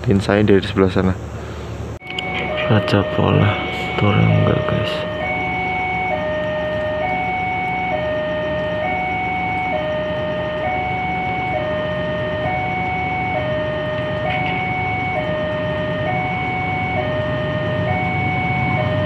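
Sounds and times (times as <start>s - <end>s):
train rumble: 0.0s - 19.0s
two-tone crossing alarm: 2.0s - 19.0s.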